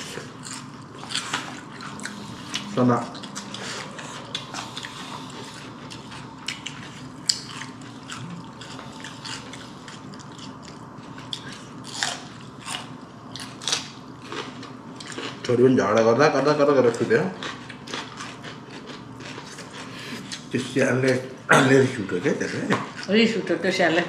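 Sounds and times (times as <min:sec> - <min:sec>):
person chewing food: 0:00.0 - 0:15.5, 0:17.0 - 0:20.5.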